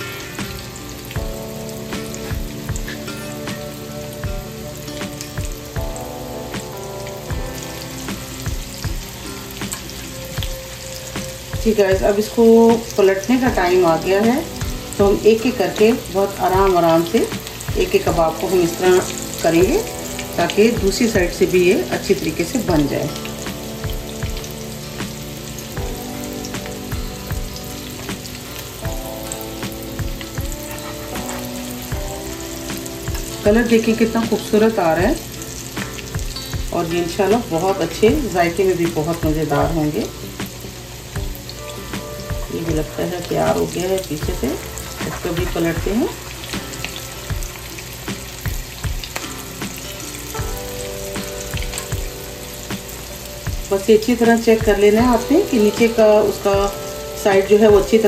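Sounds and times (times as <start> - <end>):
food sizzling in oil: 0.0 - 58.0.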